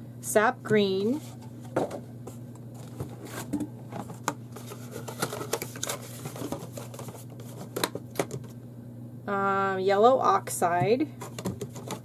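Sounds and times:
steady low hum: 0.0 - 12.0
cardboard rustle: 1.1 - 8.0.

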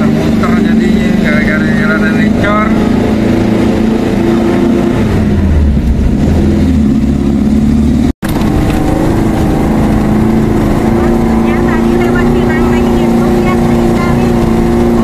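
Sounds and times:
car engine running: 0.0 - 15.0
road noise: 0.0 - 15.0.

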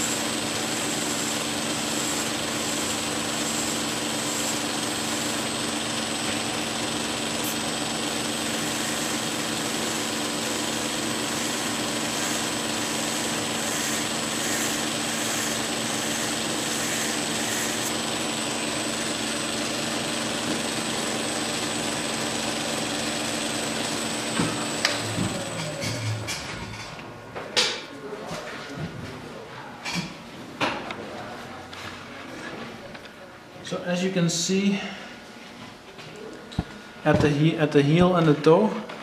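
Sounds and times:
blade grinding on belt: 0.0 - 26.3
belt sander humming: 0.0 - 26.5.

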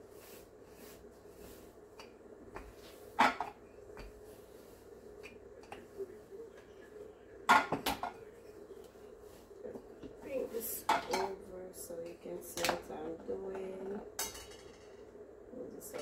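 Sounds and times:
rolling pin rolling dough: 0.0 - 11.3.

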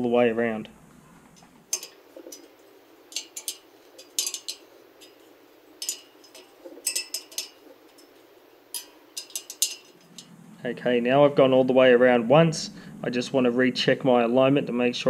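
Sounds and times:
spoke wrench metallic clinks: 1.7 - 10.3.

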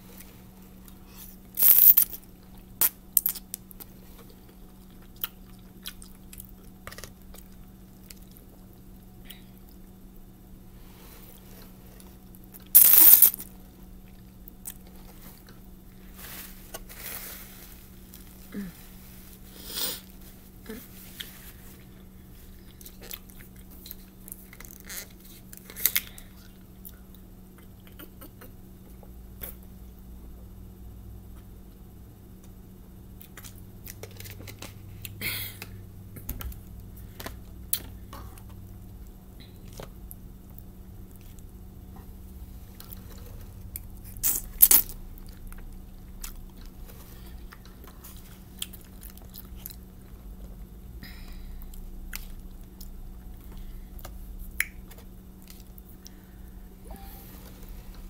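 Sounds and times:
faint steady hum: 0.0 - 58.0
person chewing food: 0.2 - 9.9, 21.1 - 29.6, 42.8 - 50.7.

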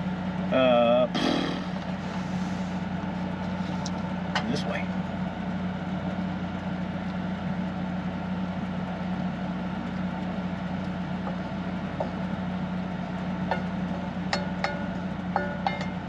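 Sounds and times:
motor humming: 1.1 - 4.2.

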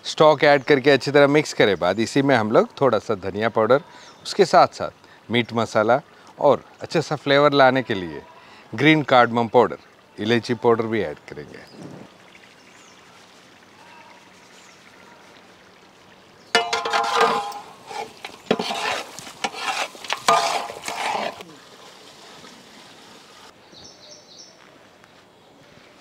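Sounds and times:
ladle scraping a pot: 16.5 - 21.4
food sizzling in a pot: 16.5 - 21.6.

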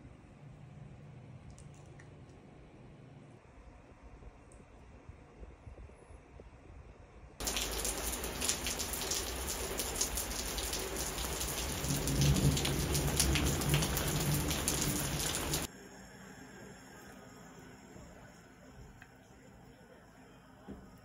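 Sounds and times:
drops dripping off roof eaves: 7.4 - 15.7
heavy rain falling: 7.4 - 15.7.

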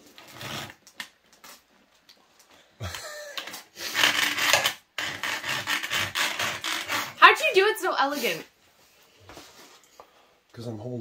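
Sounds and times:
file rasping on steel: 3.8 - 7.2.

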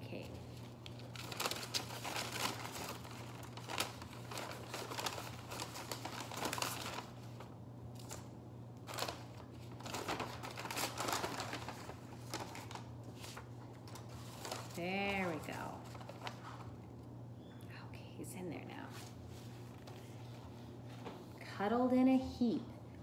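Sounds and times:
paper bag crinkling: 0.1 - 17.0.

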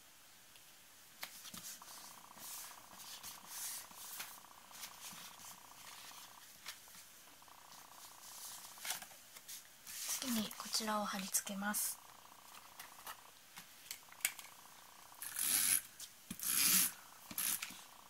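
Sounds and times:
faint steady buzz: 0.0 - 18.0
cardstock rubbing and rustling: 1.2 - 11.3.

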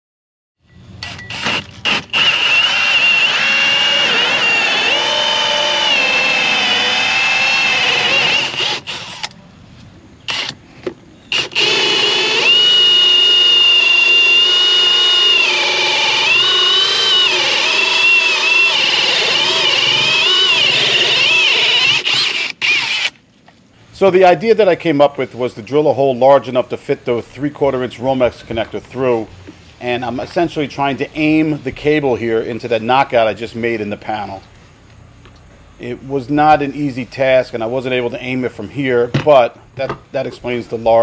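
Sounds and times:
cordless drill motor whine: 1.0 - 9.4, 10.3 - 10.6, 11.3 - 23.2.

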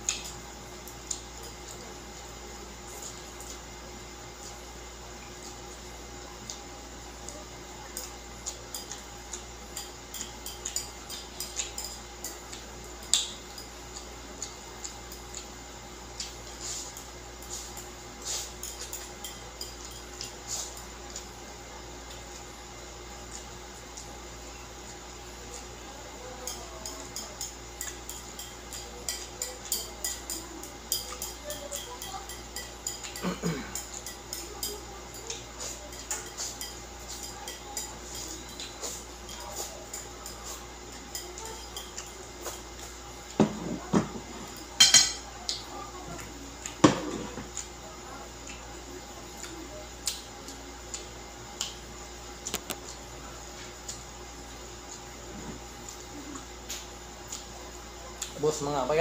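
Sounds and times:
chewing mouth clicks: 12.5 - 15.5, 49.4 - 51.8
chopsticks tapping a plate: 26.4 - 45.6.

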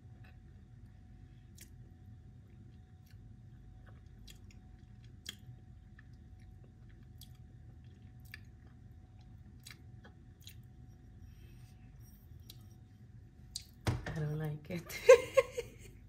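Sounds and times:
chewing gummy sweet: 0.1 - 11.1.

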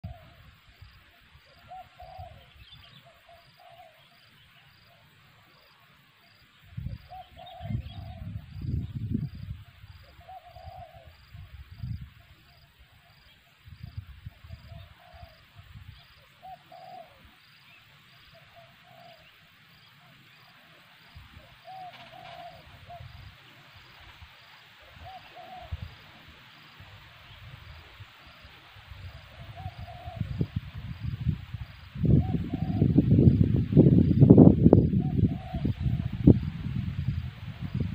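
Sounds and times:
dove cooing: 0.0 - 0.5, 1.4 - 4.2, 7.1 - 8.4, 10.0 - 11.5, 14.5 - 17.4, 18.4 - 19.3, 21.3 - 23.5, 24.8 - 26.3, 29.0 - 30.6, 32.0 - 33.2, 34.9 - 36.2.

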